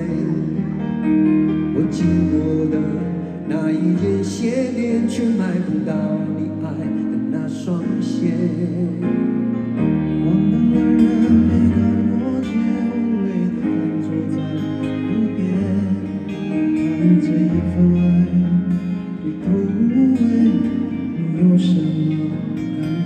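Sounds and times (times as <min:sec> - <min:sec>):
electric guitar: 0:00.0 - 0:23.0.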